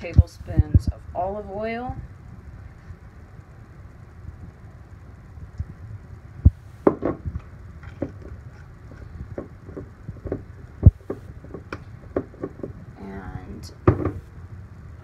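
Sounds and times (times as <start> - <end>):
loud thumps: 6.4 - 8.4, 13.8 - 14.3.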